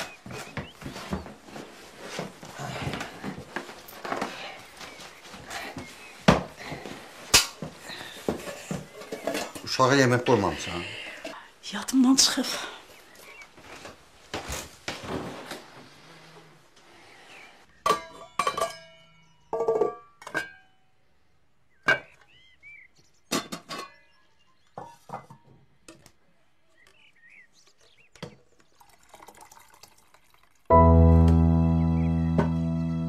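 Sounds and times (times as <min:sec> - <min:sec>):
plates clinking: 0:06.3 - 0:11.4, 0:17.8 - 0:20.8
pots and pans clattering: 0:07.4 - 0:10.6, 0:17.8 - 0:20.8, 0:23.3 - 0:25.5
music: 0:30.7 - 0:33.0.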